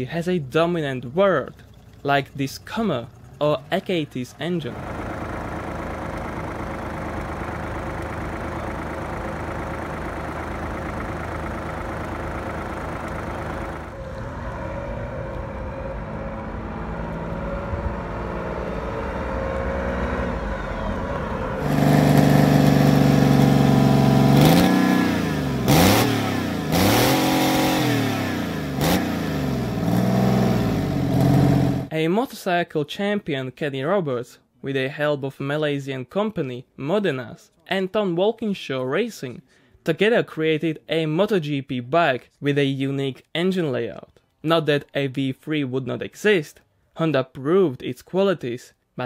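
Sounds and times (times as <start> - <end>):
diesel engine revving: 0.6 - 31.9
pickup driving off: 0.8 - 31.9
engine running steadily: 1.0 - 31.9.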